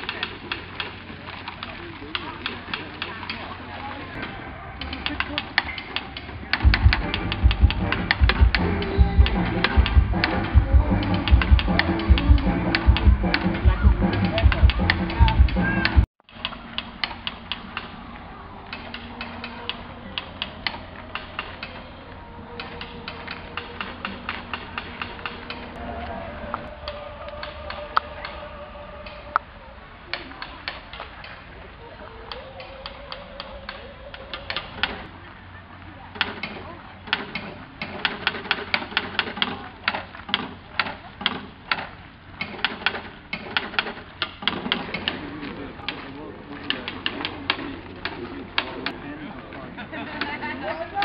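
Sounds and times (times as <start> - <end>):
mechanical woodpecker tapping: 0.0 - 3.4, 4.8 - 18.0, 18.6 - 21.8, 22.6 - 25.8, 26.6 - 29.4, 32.3 - 35.1, 36.2 - 45.2.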